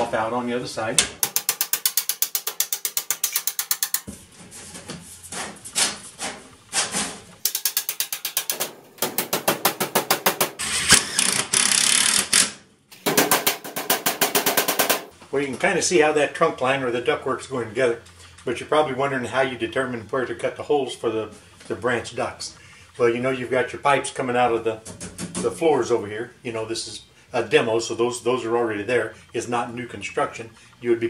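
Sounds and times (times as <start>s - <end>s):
rapid clicking on sheet metal: 1.2s - 4.1s, 6.7s - 10.6s, 13.0s - 15.1s.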